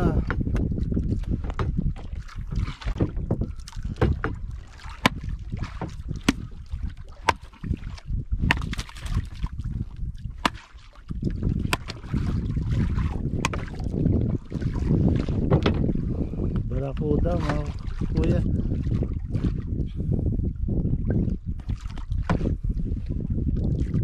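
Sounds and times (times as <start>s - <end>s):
wind and water rumble: 0.0s - 24.0s
knocks on wooden boat: 3.0s - 4.4s, 8.4s - 8.9s, 13.4s - 13.7s, 15.5s - 15.9s.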